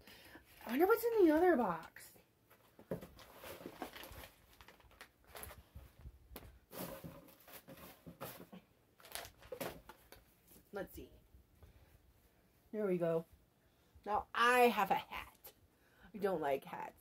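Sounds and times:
packaging rustling: 2.6s - 5.9s, 6.8s - 10.3s.

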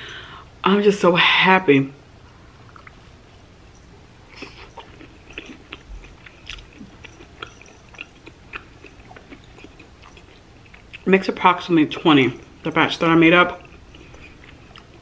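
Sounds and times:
person chewing crunchy food: 4.3s - 11.1s, 11.9s - 15.0s.

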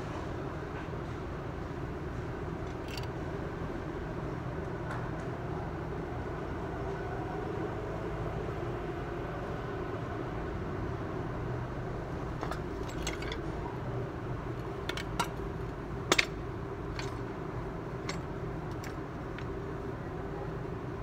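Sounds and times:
metal clinks and clanks: 12.4s - 13.6s, 14.6s - 17.3s, 18.0s - 19.5s.

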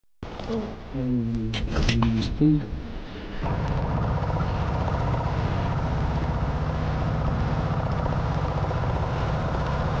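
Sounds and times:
boat engine running: 3.4s - 10.0s.

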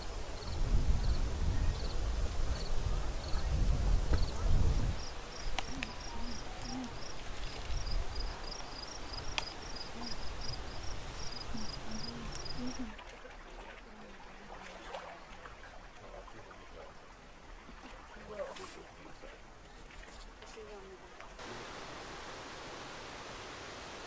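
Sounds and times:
wind rumble on microphone: 0.0s - 8.5s.

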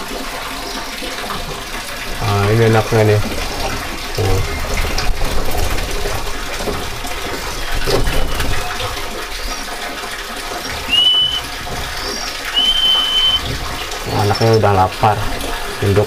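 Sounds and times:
bird whistled call: 10.6s - 13.6s
high squeaks: 10.6s - 14.9s.

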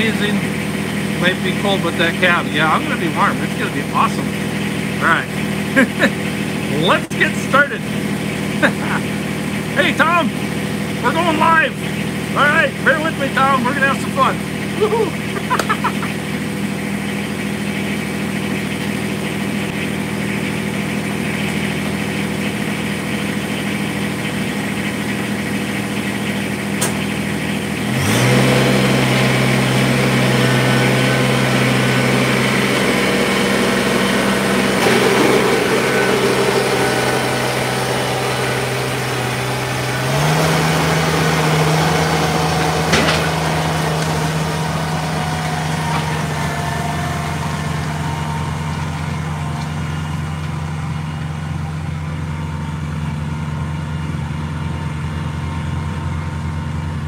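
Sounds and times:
tractor diesel engine running: 0.0s - 57.0s
snowblower throwing snow: 27.9s - 50.6s.

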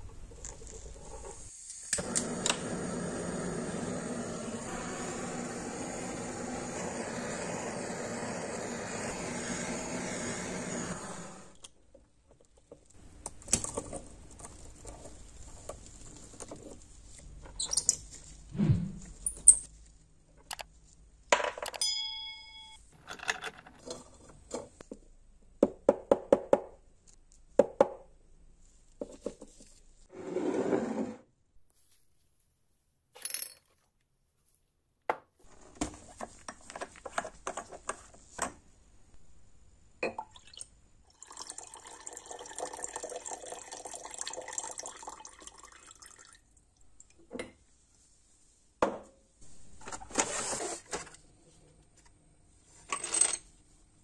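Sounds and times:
liquid pouring into glass jar: 40.1s - 46.4s.

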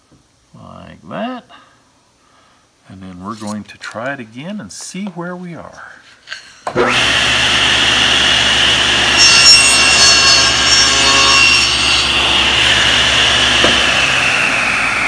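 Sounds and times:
saw blade cutting wood: 6.8s - 15.0s
table saw running: 6.8s - 15.0s.

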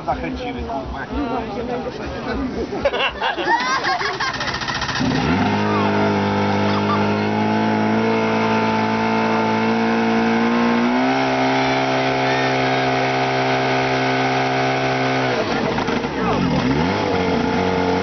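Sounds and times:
pump engine running and revving: 3.9s - 18.0s.

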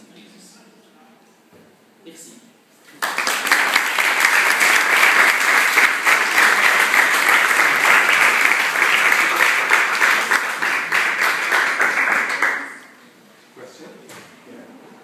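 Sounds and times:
audience applauding: 3.0s - 12.9s.

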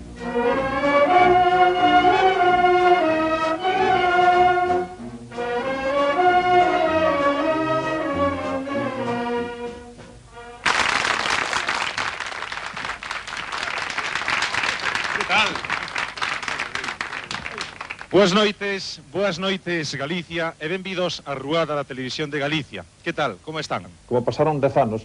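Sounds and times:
brass band playing: 0.0s - 10.8s
audience applause: 10.6s - 18.5s.

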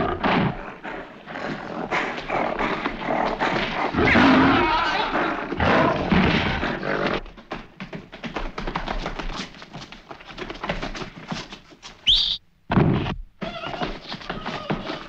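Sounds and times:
gorilla roar: 0.0s - 7.2s
feet scrambling on floor: 7.2s - 12.3s, 12.9s - 15.0s.

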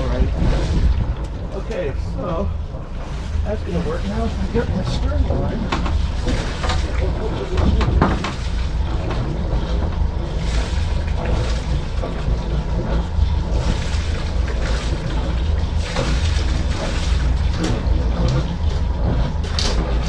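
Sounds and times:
knocks and rattles on boat: 0.0s - 20.0s
steady low rumble: 0.0s - 20.0s
wind buffeting microphone: 0.0s - 20.0s.

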